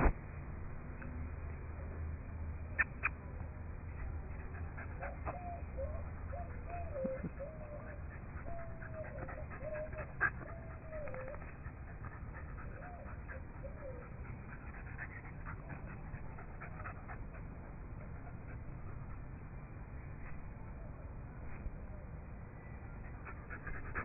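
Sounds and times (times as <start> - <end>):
dog panting and snuffling: 3.8 - 19.5, 22.9 - 24.0.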